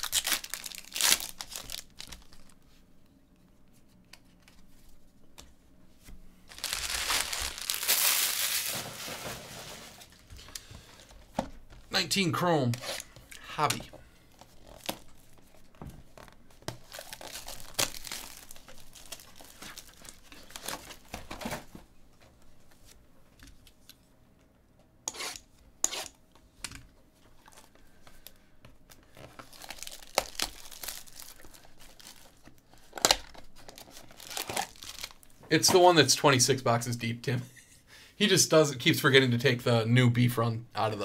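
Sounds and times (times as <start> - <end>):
plastic wrap crackling: 0.0 - 2.6, 6.5 - 10.3, 16.2 - 21.2, 28.9 - 35.3.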